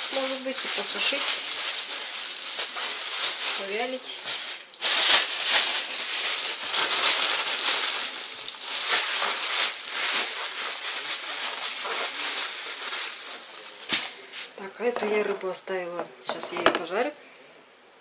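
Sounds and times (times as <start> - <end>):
plastic bags rustling and crinkling: 0.0 - 15.6.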